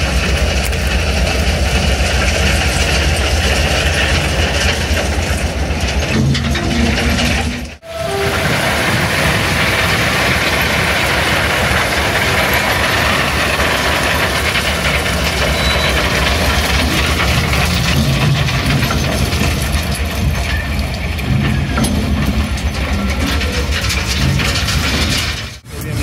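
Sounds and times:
train wheels rumbling on rail: 0.0 - 26.0
falling stone rattling: 8.3 - 25.6.

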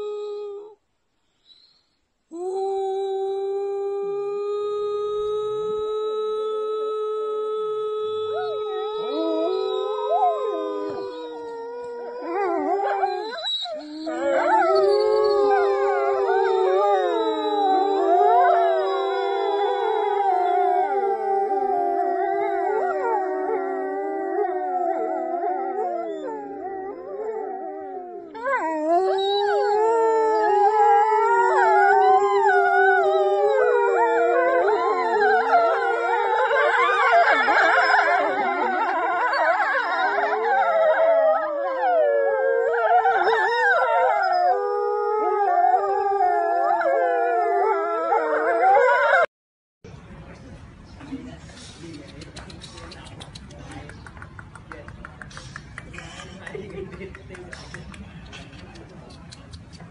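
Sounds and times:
person howling through hands: 0.0 - 0.8, 2.3 - 13.2, 14.0 - 49.0
wolves howling in chorus: 8.2 - 49.3.

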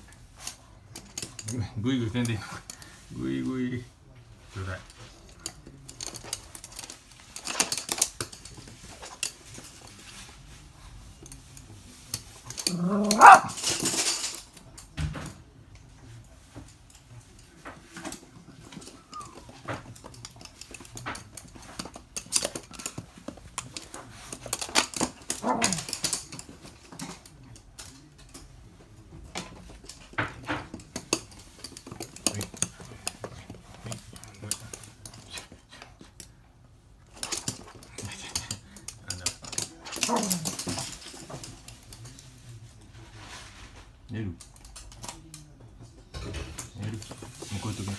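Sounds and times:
dogs scampering on hard floor: 4.6 - 36.4, 37.0 - 47.9
dog barking: 13.0 - 13.6.

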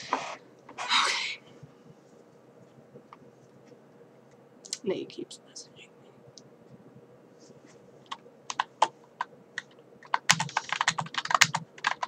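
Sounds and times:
computer keyboard typing: 8.1 - 12.0.

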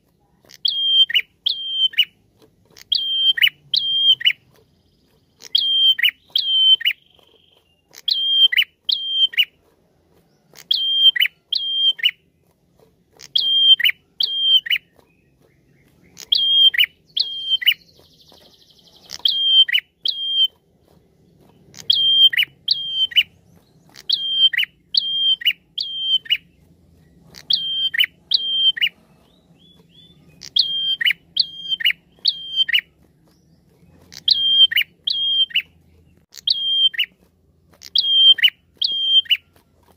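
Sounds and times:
buzzy bird rattle: 0.0 - 39.9
bird calling sharp high notes: 0.5 - 2.2, 2.8 - 4.4, 5.4 - 9.6, 10.5 - 12.2, 13.2 - 15.1, 15.8 - 20.6, 21.4 - 26.6, 27.3 - 33.0, 34.0 - 35.7, 36.3 - 39.6.

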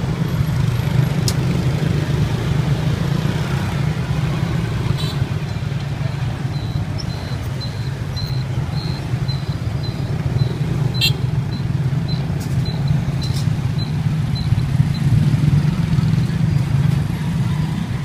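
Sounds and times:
street traffic rumble: 0.0 - 18.0.

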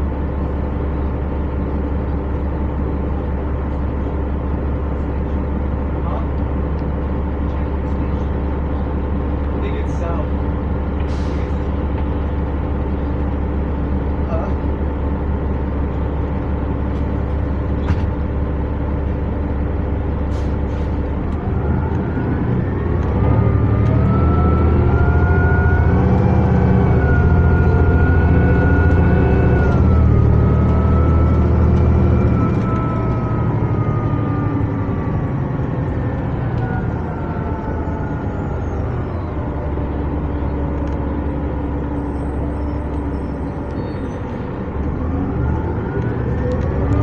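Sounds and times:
bus diesel engine: 0.0 - 47.0
rising whine: 21.2 - 47.0.

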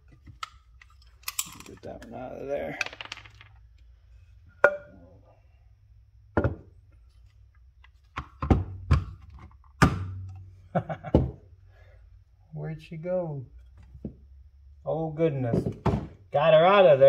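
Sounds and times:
tools knocking on wooden workbench: 6.4 - 6.7.

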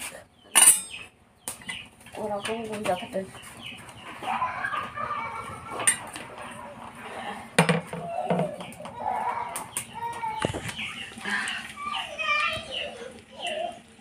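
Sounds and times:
hens clucking: 1.7 - 14.0
faint voices: 4.0 - 14.0.

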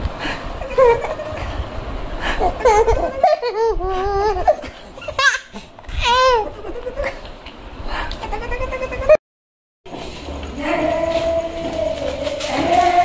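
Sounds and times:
baby laughing and squealing: 0.6 - 1.5, 2.4 - 7.2, 8.2 - 9.2.

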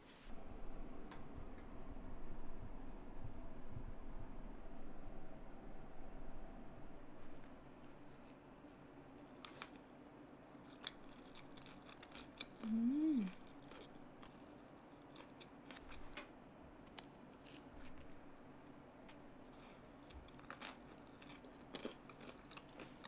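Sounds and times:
person humming mmm: 12.6 - 13.5.

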